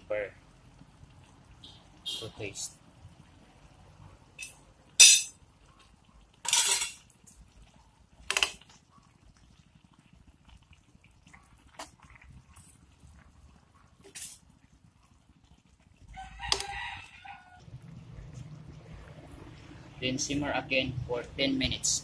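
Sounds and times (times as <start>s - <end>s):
metal spoon clinking on wok: 4.4s - 5.3s, 6.5s - 7.0s.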